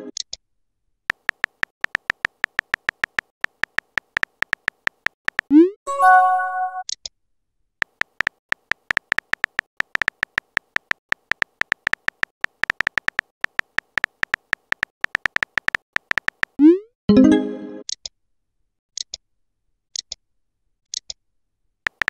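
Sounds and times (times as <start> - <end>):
short chime: 5.9 - 6.8.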